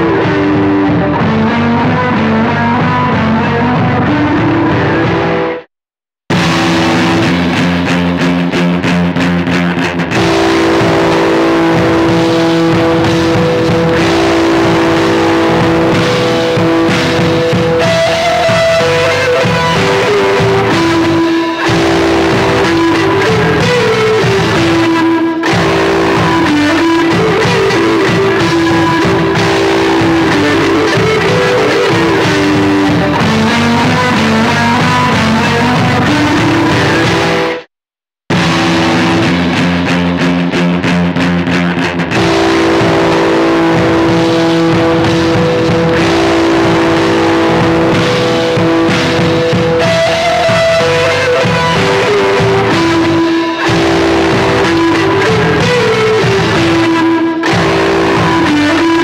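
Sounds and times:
dense synth music loop: 0:10.2 - 0:18.9, 0:42.2 - 0:50.4.

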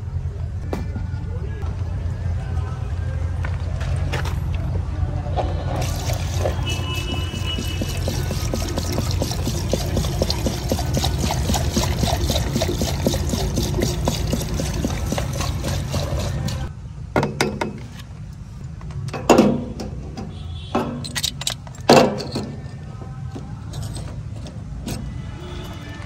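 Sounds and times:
liquid pouring and gurgling: 0:05.8 - 0:16.7.

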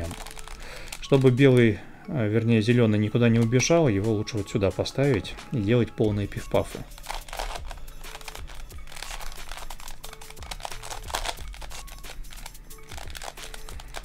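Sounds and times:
plastic puzzle clicking and scraping: 0:00.0 - 0:01.7, 0:06.8 - 0:14.0
faint background music: 0:00.0 - 0:14.0.

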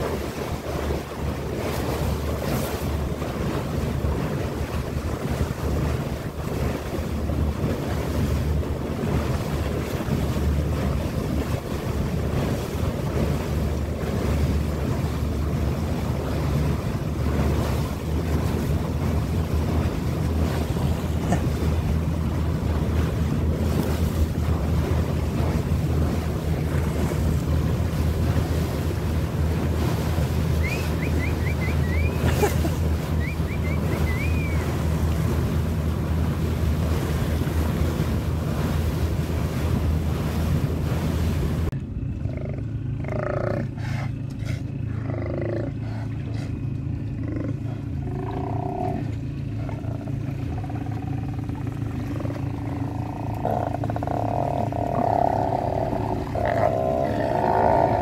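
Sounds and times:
wind buffeting microphone: 0:00.0 - 0:43.6
boat engine running: 0:00.0 - 0:58.0
water rushing: 0:00.0 - 0:58.0.

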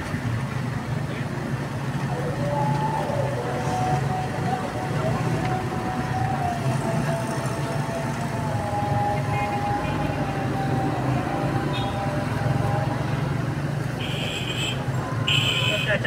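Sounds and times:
low motor rumble: 0:01.5 - 0:13.6.

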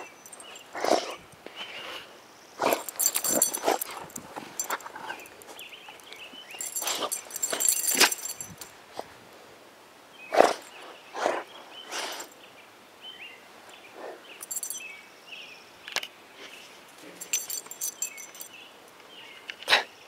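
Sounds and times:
small birds chirping: 0:00.0 - 0:00.8, 0:01.5 - 0:08.7, 0:10.1 - 0:19.6
dog sniffing and snuffling: 0:02.6 - 0:09.1.

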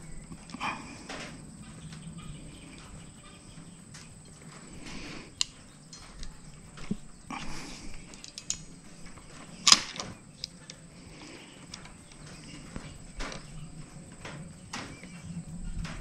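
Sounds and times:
crimping tool clicks: 0:04.0 - 0:13.6.

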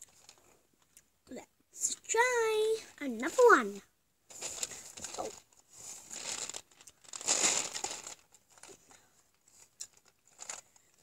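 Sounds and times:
close rustling and crinkling: 0:00.0 - 0:01.0, 0:02.8 - 0:11.0.

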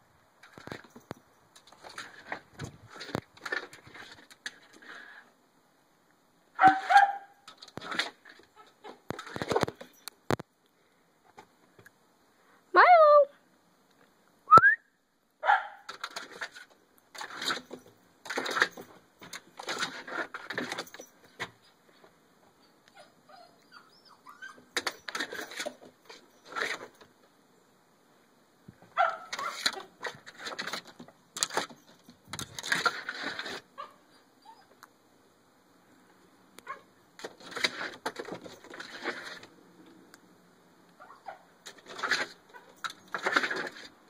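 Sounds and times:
dog paws scratching door glass: 0:15.8 - 0:21.6, 0:24.6 - 0:27.0, 0:29.0 - 0:34.0, 0:37.2 - 0:39.5, 0:41.6 - 0:43.9.

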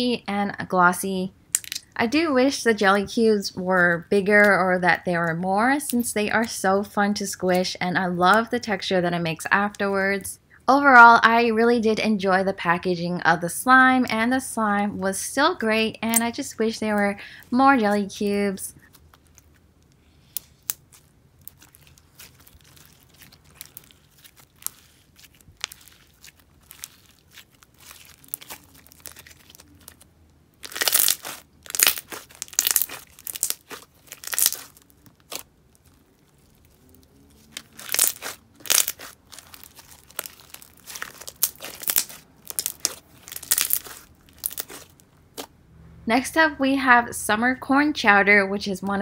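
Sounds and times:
slime squelching and clicking: 0:18.8 - 0:45.5.

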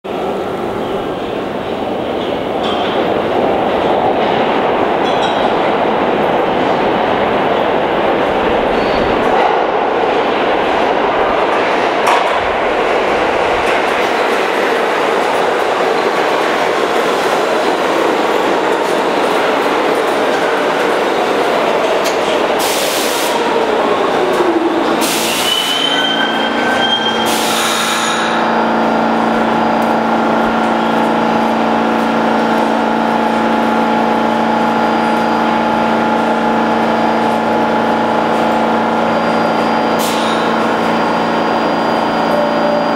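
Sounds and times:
subway train wheel and track noise: 0:00.0 - 0:42.9
braking train whine: 0:00.1 - 0:42.9
stopped train humming: 0:00.1 - 0:42.9
short air hisses: 0:27.3 - 0:28.2.

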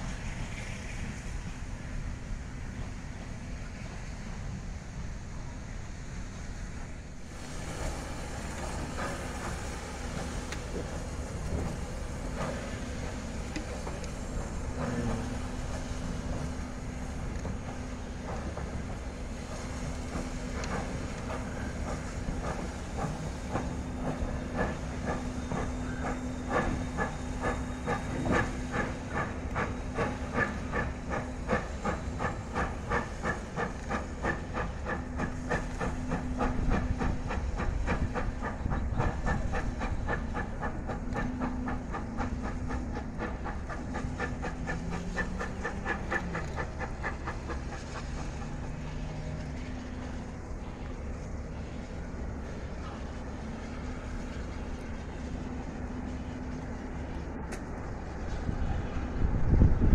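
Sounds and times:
steady engine hum: 0:00.0 - 0:59.9
steam hiss: 0:00.0 - 0:59.9
steam locomotive exhaust chuffing: 0:00.0 - 0:59.9.

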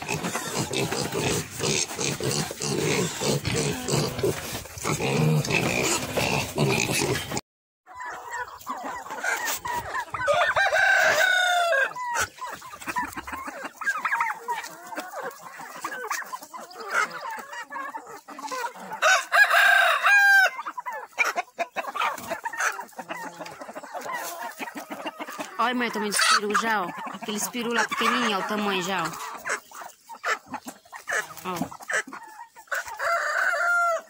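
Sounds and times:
chickens clucking: 0:00.0 - 0:34.0
rooster crowing: 0:10.2 - 0:12.0, 0:19.0 - 0:20.6, 0:32.8 - 0:34.0.

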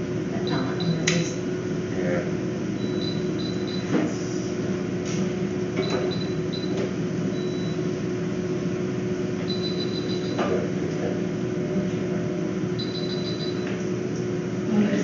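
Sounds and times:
electrical hum: 0:00.0 - 0:15.0
short high-pitched beeps: 0:00.4 - 0:01.0, 0:02.8 - 0:03.9, 0:05.8 - 0:06.7, 0:07.4 - 0:07.8, 0:09.5 - 0:10.4, 0:12.8 - 0:13.7.

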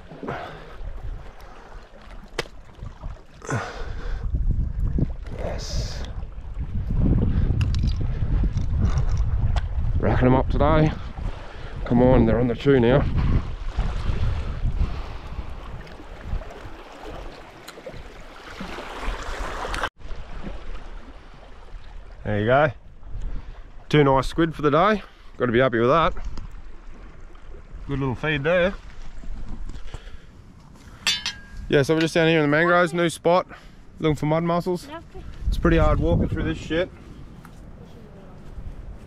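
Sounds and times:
wind buffeting microphone: 0:03.8 - 0:18.4, 0:21.0 - 0:24.6, 0:34.9 - 0:39.0
sea water washing against rocks: 0:13.6 - 0:22.2.

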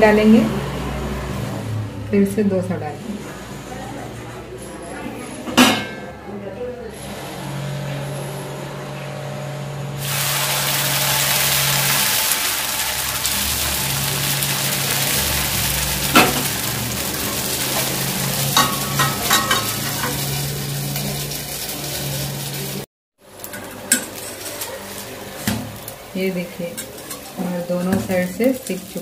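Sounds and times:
batter sizzling in hot oil: 0:10.0 - 0:29.0.

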